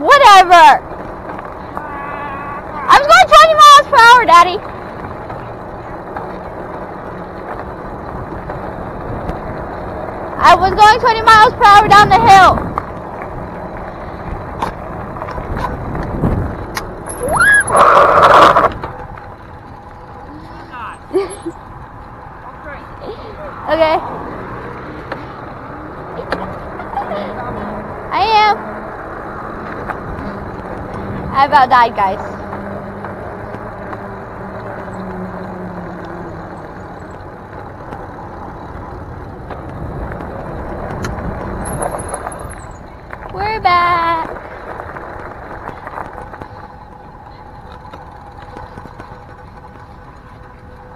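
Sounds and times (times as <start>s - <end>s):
bike tyres rolling on pavement: 0.0s - 50.9s
wind rushing over microphone: 7.9s - 19.0s
short rising squeal: 17.1s - 18.7s.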